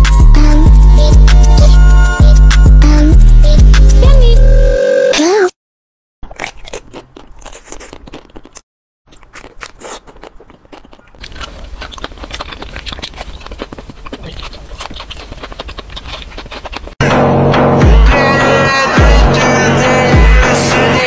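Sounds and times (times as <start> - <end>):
crunching and chewing ice cream: 6.2 - 17.0.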